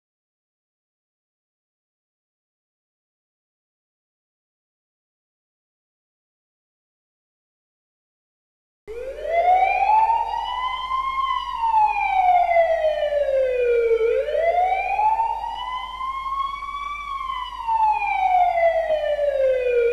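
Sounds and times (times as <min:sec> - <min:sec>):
wailing siren: 0:08.9 - 0:19.9.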